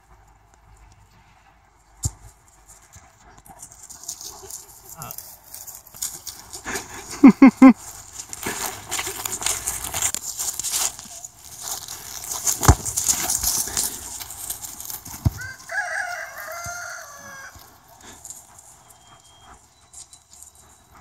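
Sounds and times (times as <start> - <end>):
hoof and paw steps on grass: 0.0 - 21.0
rooster crowing: 15.3 - 17.9.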